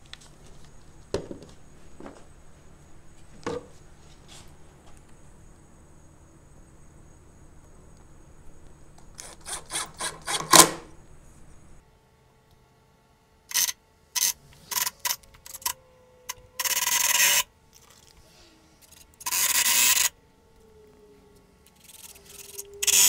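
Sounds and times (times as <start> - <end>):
faint drill motor whine: 8.0 - 11.8, 13.5 - 23.0
drill clicks: 9.0 - 10.9, 22.0 - 23.0
screws grinding into wood: 9.2 - 10.9, 16.6 - 17.5, 18.9 - 20.1, 21.8 - 23.0.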